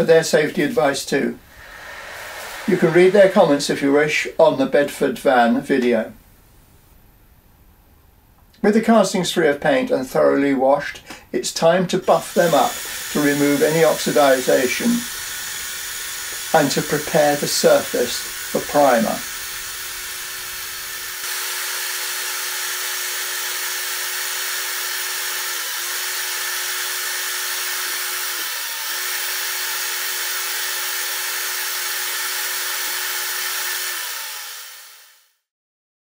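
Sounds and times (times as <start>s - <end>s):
wire brush hissing on metal: 1.4s - 4.2s, 12.1s - 21.2s
power drill motor whine: 1.5s - 3.7s, 12.1s - 35.4s.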